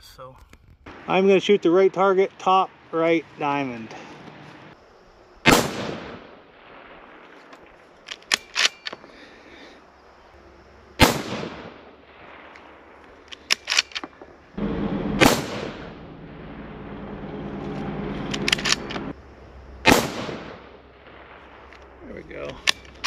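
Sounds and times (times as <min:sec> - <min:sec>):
rifle shots: 0:05.4 - 0:09.1, 0:11.0 - 0:16.2, 0:19.8 - 0:23.0
rifle bolt clicking: 0:08.1 - 0:09.0, 0:13.3 - 0:14.1, 0:18.3 - 0:19.0, 0:22.6 - 0:23.0.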